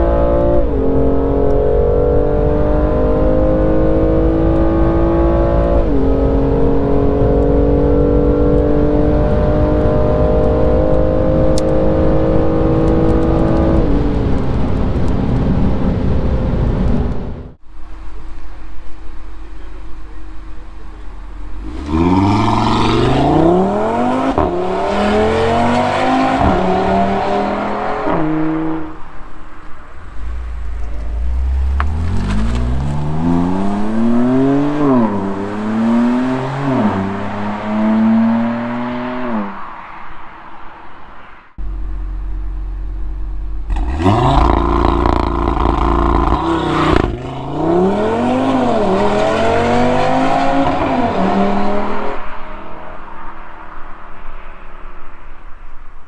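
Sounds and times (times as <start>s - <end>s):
car accelerating away: 0.0s - 14.0s, 21.5s - 29.1s, 30.1s - 39.6s, 41.6s - 53.0s
car engine exhaust revving: 20.9s - 29.1s, 30.0s - 39.6s, 41.6s - 52.2s.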